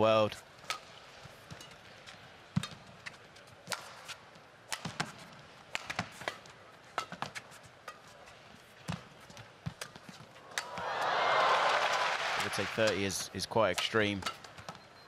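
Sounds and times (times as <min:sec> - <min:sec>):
faint hall ambience: 0:00.0 - 0:15.0
racket striking shuttlecock: 0:04.7 - 0:08.1, 0:09.8 - 0:10.8.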